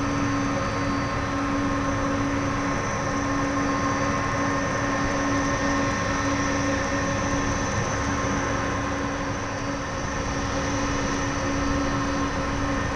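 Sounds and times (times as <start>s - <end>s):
jet engines whining and roaring: 0.0s - 12.9s.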